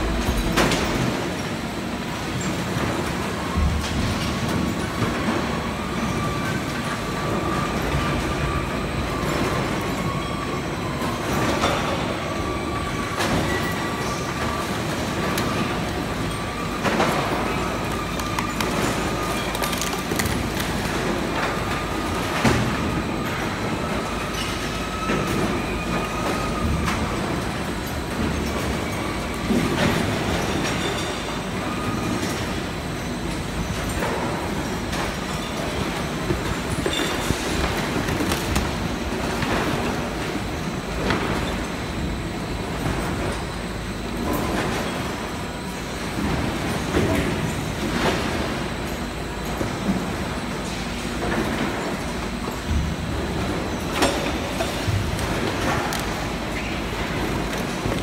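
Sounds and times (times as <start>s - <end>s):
heavy machinery rumbling and clattering: 0.0s - 58.0s.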